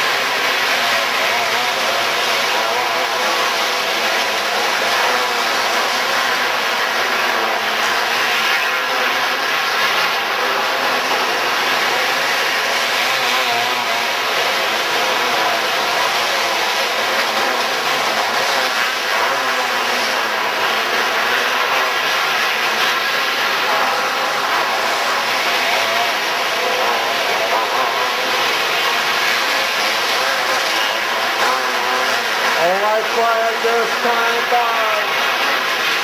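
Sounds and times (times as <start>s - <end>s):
dirt kart engines racing: 0.0s - 36.0s.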